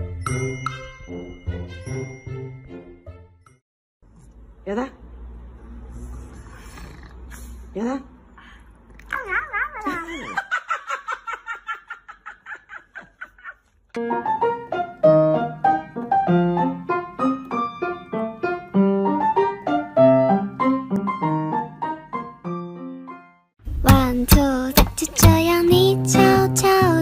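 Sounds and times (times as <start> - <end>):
piano music with steady beat: 14.0 - 26.9.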